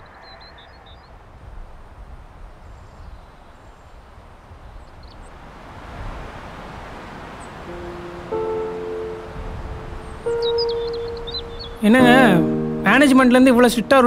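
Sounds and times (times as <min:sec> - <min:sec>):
faint bird chirps: 0:00.0 - 0:01.2, 0:07.4 - 0:13.4.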